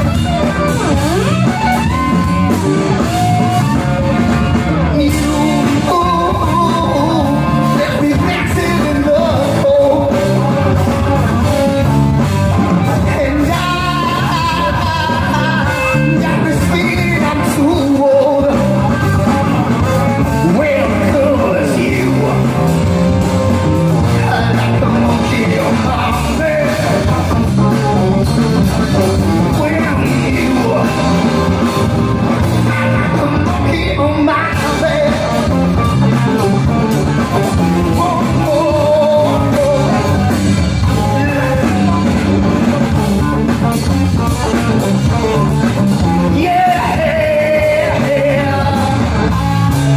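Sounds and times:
bass guitar: 0:00.0 - 0:49.9
electric guitar: 0:00.0 - 0:49.9
person singing into microphone: 0:00.0 - 0:49.9.

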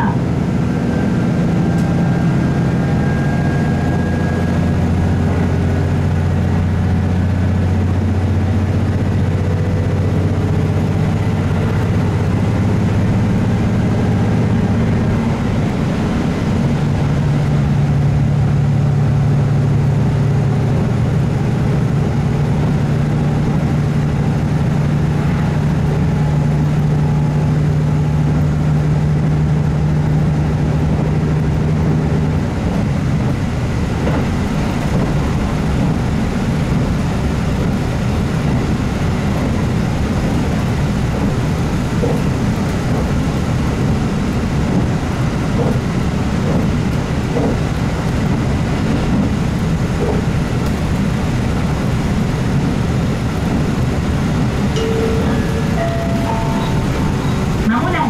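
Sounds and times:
diesel engine running: 0:00.0 - 0:58.0
wheel-on-rail rolling noise: 0:00.3 - 0:58.0.

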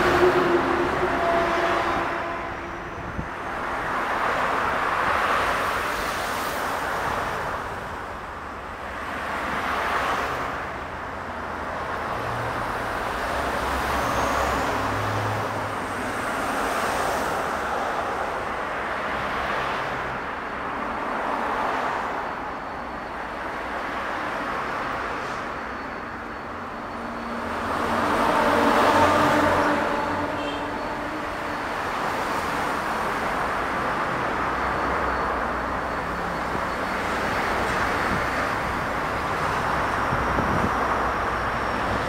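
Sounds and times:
locomotive engine drone: 0:00.0 - 0:42.0.

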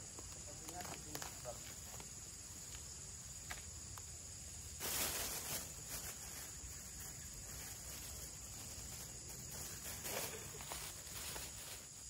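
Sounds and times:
insects droning: 0:00.0 - 0:12.0
rustling: 0:04.7 - 0:12.0.

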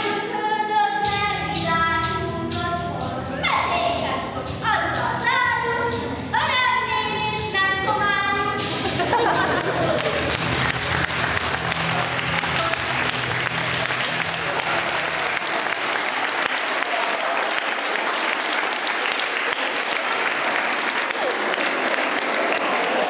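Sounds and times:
audience clapping: 0:09.4 - 0:23.0.

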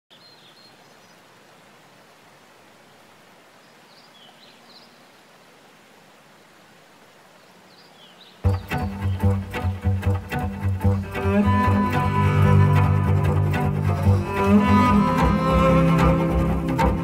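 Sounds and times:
faint outdoor background noise: 0:00.1 - 0:17.0
bowed string music with cello: 0:08.4 - 0:17.0.

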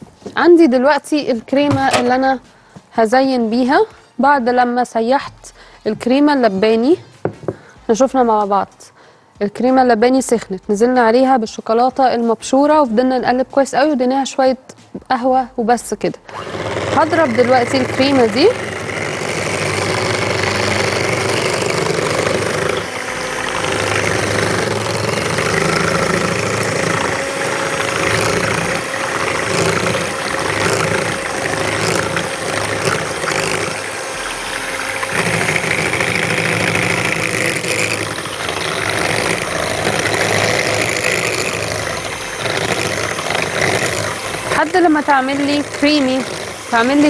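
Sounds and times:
electric hand mixer whisking: 0:00.0 - 0:02.5, 0:15.9 - 0:47.0.

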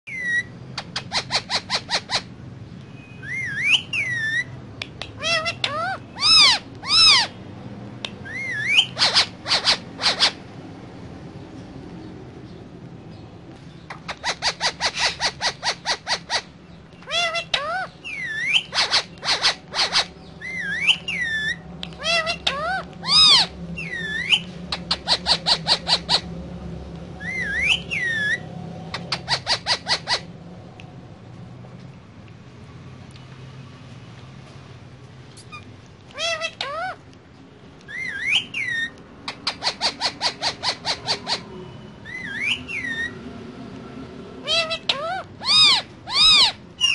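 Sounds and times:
parakeet chirps and whistles: 0:00.1 - 0:02.3, 0:02.9 - 0:07.4, 0:08.0 - 0:10.5, 0:13.8 - 0:26.3, 0:27.2 - 0:30.3, 0:35.4 - 0:37.0, 0:37.8 - 0:43.2, 0:44.4 - 0:46.9.

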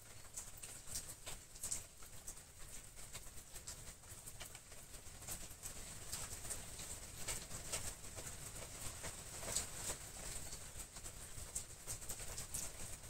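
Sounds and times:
leaves rustling and crackling: 0:05.3 - 0:13.0.

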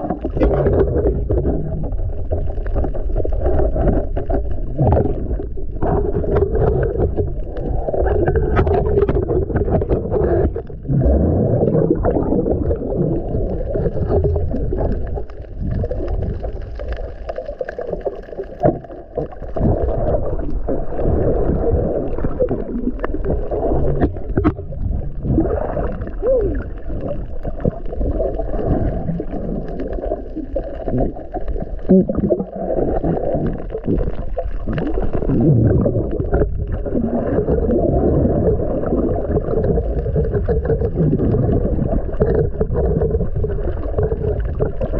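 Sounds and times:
muffled underwater gurgling: 0:00.0 - 0:44.9.

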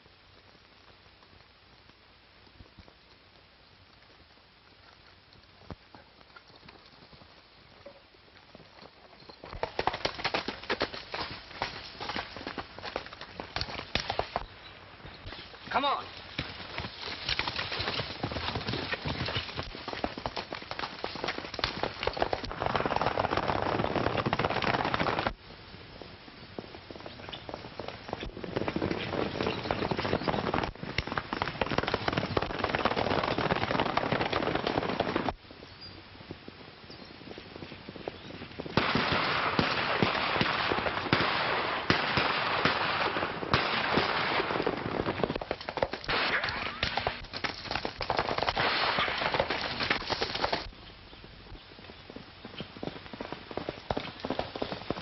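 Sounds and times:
dense popping and crackling: 0:00.0 - 0:55.0.

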